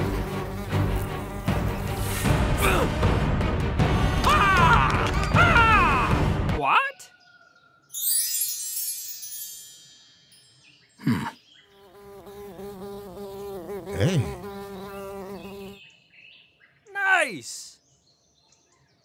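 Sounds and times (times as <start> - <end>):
cartoon fly buzzing: 0.0 - 2.2, 11.8 - 15.8.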